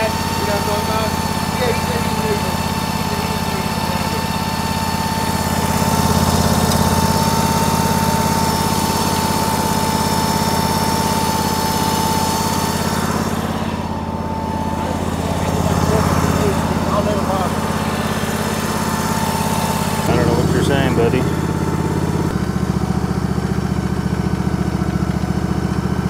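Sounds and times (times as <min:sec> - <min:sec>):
small gas engine running: 0:00.0 - 0:26.0
high whine: 0:04.8 - 0:22.6.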